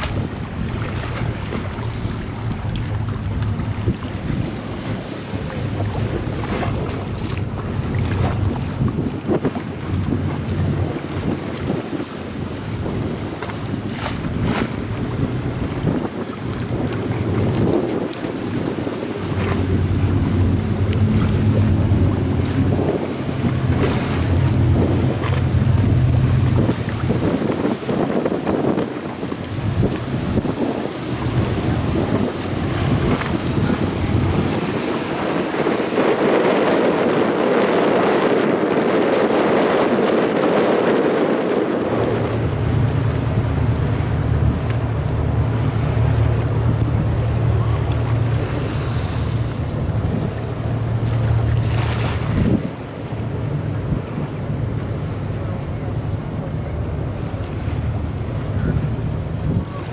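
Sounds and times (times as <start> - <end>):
water rushing off hulls: 0.0 - 59.9
wind buffeting microphone: 0.0 - 59.9
low rumble: 18.6 - 27.9, 41.5 - 59.8.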